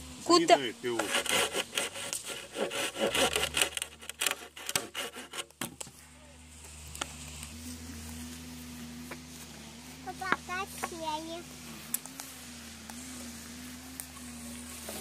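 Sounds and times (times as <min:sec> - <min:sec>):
hand saw cutting wood: 0:00.8 - 0:05.8.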